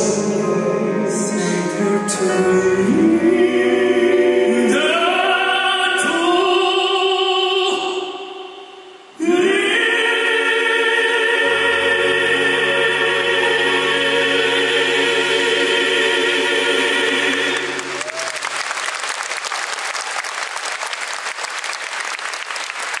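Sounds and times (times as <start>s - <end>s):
male vocal quartet singing: 0.0s - 18.0s
audience applause: 17.6s - 23.0s.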